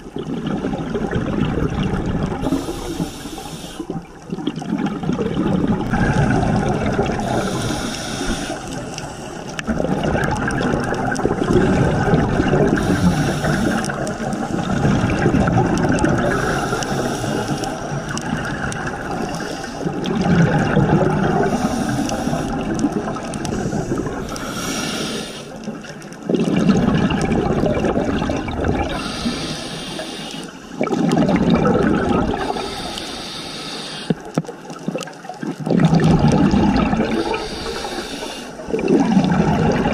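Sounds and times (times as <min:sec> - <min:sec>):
exhaust bubbles gushing: 0:00.0 - 0:24.7, 0:25.5 - 0:29.4, 0:30.6 - 0:32.8, 0:34.8 - 0:39.9
regulator inhale hiss: 0:02.4 - 0:04.0, 0:07.2 - 0:09.6, 0:12.7 - 0:14.7, 0:16.3 - 0:18.2, 0:19.2 - 0:19.9, 0:21.4 - 0:22.7, 0:23.4 - 0:25.6, 0:28.9 - 0:30.7, 0:32.4 - 0:34.3, 0:37.2 - 0:38.7.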